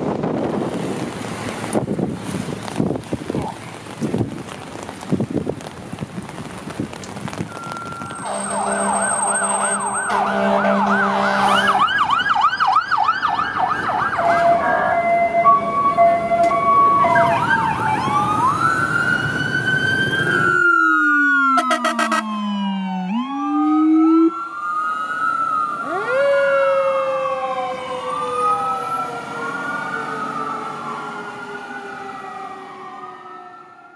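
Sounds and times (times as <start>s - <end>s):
heavy rain: 0.1s - 12.2s
sirens wailing: 7.2s - 33.9s
electronic siren yelp: 7.5s - 33.9s.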